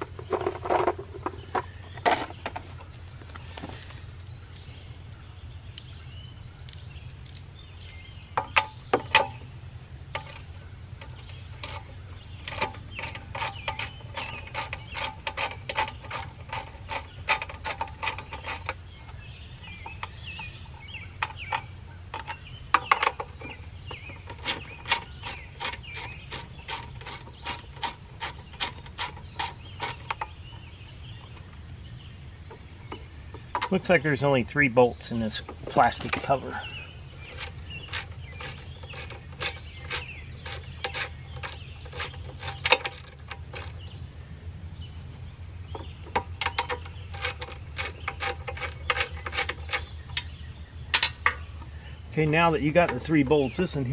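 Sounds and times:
ratcheting wrench clicking: 24.3 - 30.3, 37.2 - 43.8, 46.5 - 49.9.

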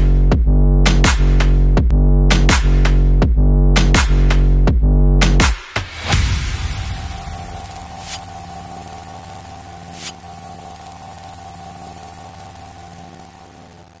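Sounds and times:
hiss: 5.9 - 14.0
steady electronic drone: 6.0 - 14.0.

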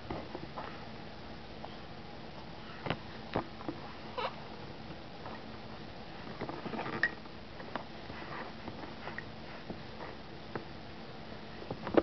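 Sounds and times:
baby vocal noises: 4.1 - 4.5.

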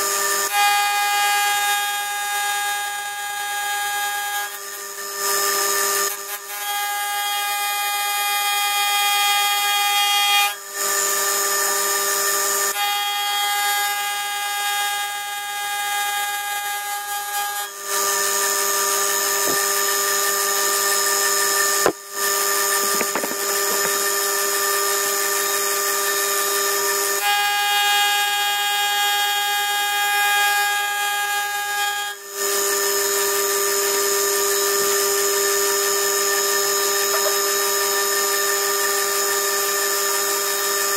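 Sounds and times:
metal cutting noise: 18.0 - 27.5, 36.6 - 38.4.

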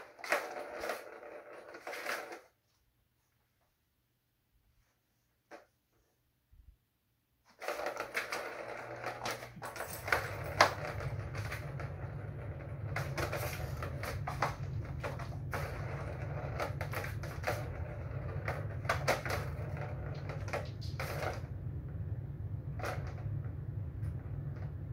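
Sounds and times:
plastic ball rattling in track: 0.0 - 2.5, 7.5 - 21.6.

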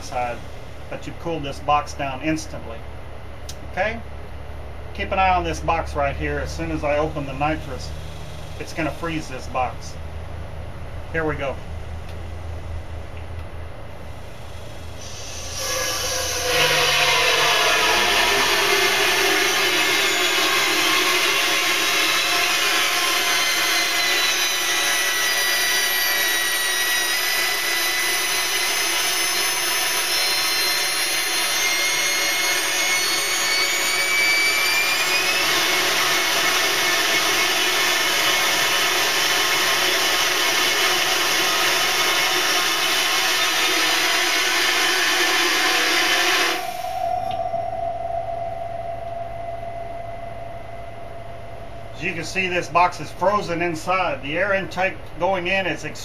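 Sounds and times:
gas rushing with loud hiss: 14.0 - 26.5, 29.9 - 47.4
thin whistling tones: 15.0 - 21.3, 29.9 - 35.6, 45.9 - 53.1.

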